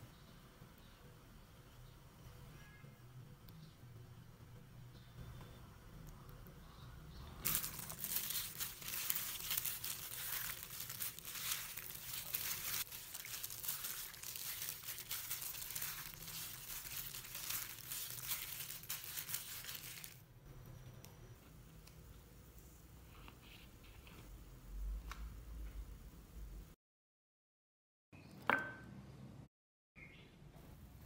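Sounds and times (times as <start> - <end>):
plastic glove crinkling: 7.4 - 20.2
wet squishing of meat: 7.5 - 20.2.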